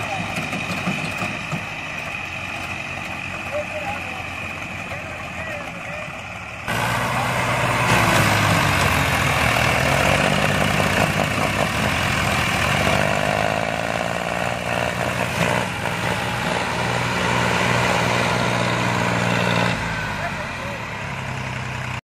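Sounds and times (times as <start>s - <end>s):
diesel tractor engines under load: 0.0s - 22.0s.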